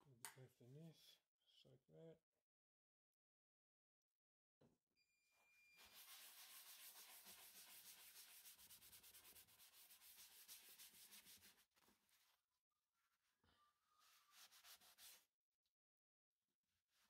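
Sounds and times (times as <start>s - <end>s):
paper towel rubbing on wood: 5.8s - 12.3s, 14.0s - 15.3s.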